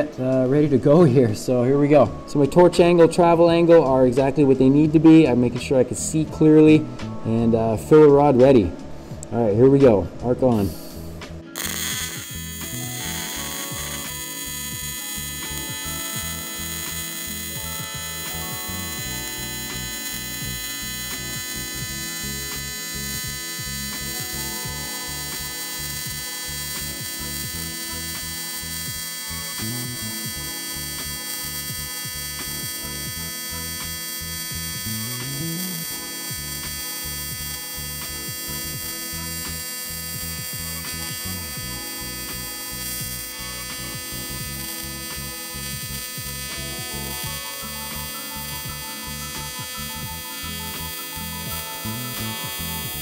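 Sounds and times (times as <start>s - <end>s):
welding arc buzzing: 10.6s - 53.0s.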